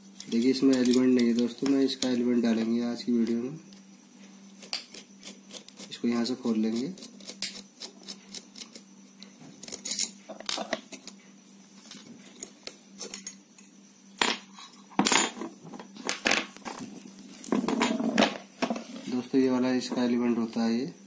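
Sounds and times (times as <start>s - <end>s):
screwdriver clicking on metal: 0.2s - 2.2s.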